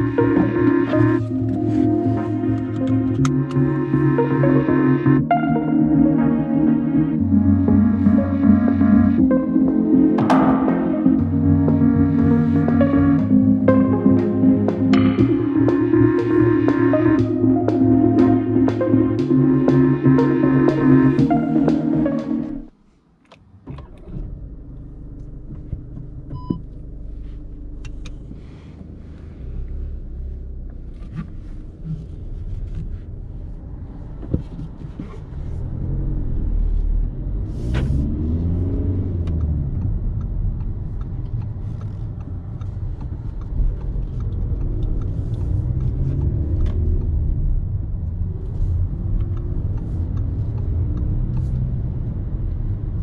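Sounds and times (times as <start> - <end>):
road and tyre rumble: 0.0 - 53.0
diesel car engine running: 23.7 - 53.0.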